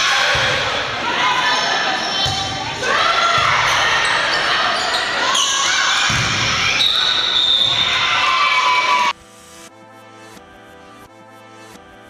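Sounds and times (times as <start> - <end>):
people shouting in a gymnasium: 0.0 - 9.2.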